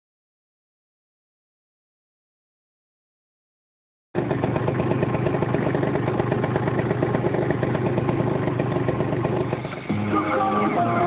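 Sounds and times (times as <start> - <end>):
scooter engine idling: 4.2 - 11.0.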